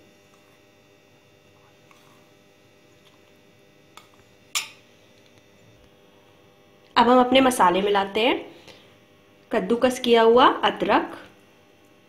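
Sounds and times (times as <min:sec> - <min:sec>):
faint electrical hum: 0:00.0 - 0:12.0
metal spoon clinking glass bowl: 0:04.5 - 0:04.8.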